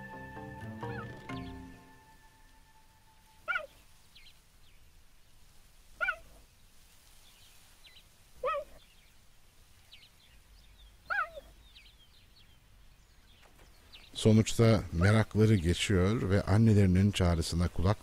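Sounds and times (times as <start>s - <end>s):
cheetah chirping: 0.8s - 1.9s, 3.3s - 4.4s, 6.0s - 6.4s, 7.9s - 9.0s, 10.8s - 12.1s.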